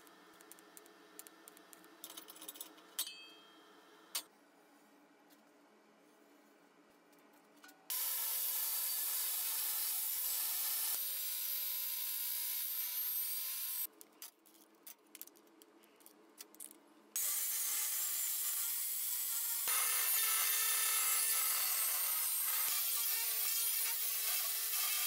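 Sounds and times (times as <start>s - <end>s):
angle grinder cutting steel: 7.9s - 13.9s, 17.2s - 25.0s
small metal clicks: 13.9s - 16.8s.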